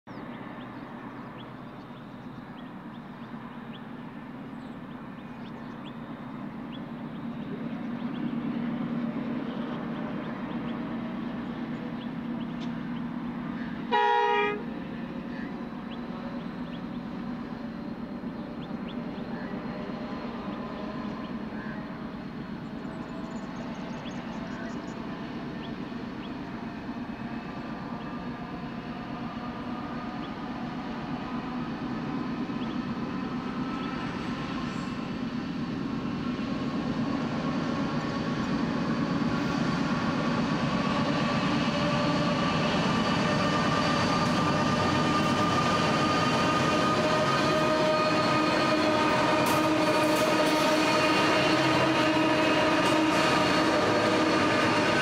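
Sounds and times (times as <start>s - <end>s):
locomotive rumble: 0.1s - 55.0s
locomotive horn blast: 13.9s - 14.7s, 46.9s - 55.0s.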